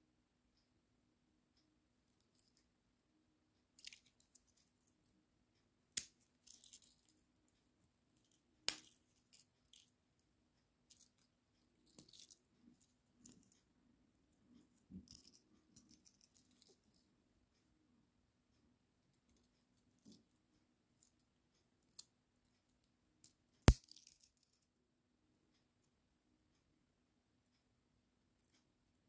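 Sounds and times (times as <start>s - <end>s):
soft clicks and scrapes: 2.1s - 2.7s, 10.9s - 17.7s.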